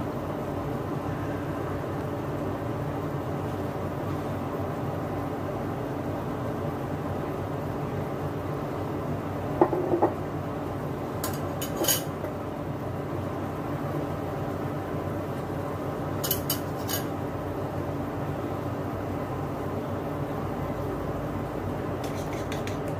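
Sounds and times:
steady hum: 0:00.0 - 0:22.9.

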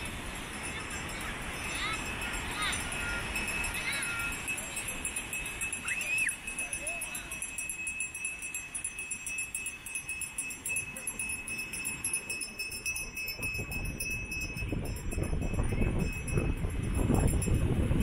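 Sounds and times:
seashore surf: 0:00.0 - 0:18.0
thin high ringing tone: 0:00.0 - 0:18.0
wind rushing: 0:13.4 - 0:18.0.

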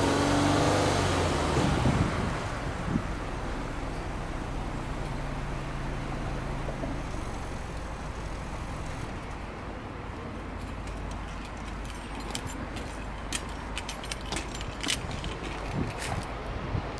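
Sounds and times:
car engine idling: 0:02.6 - 0:15.9
exhaust clicks and crackles: 0:02.6 - 0:16.9.

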